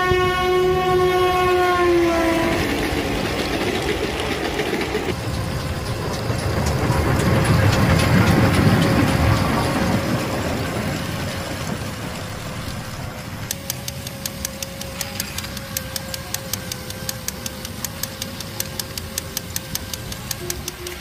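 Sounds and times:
toy train wheels clicking: 2.8s - 10.5s, 13.4s - 21.0s
small motor whining: 13.5s - 21.0s.

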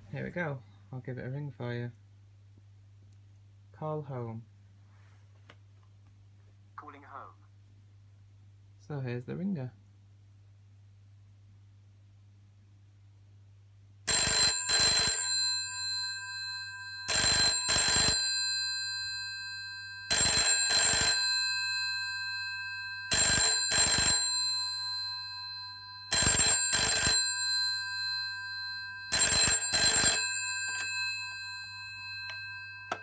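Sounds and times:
telephone bells ringing: 14.1s - 33.0s.

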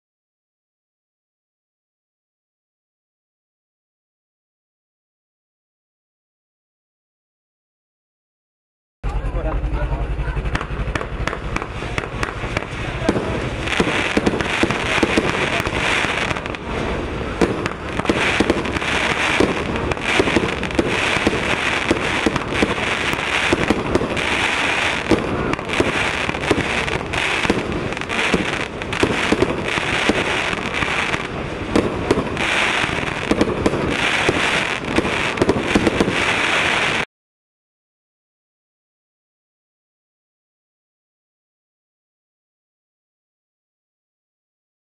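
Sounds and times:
firework rapid sharp pops: 10.5s - 37.1s
firework hiss: 10.6s - 37.1s.

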